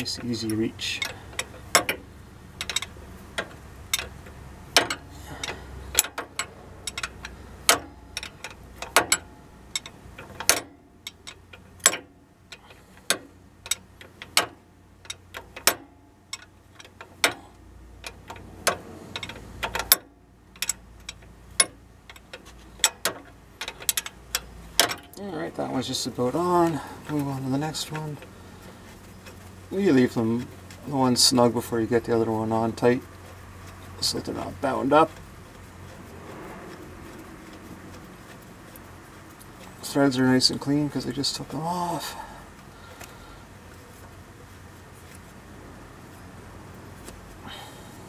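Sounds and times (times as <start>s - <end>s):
ratchet wrench clicking: 0.0s - 17.4s, 18.0s - 25.2s.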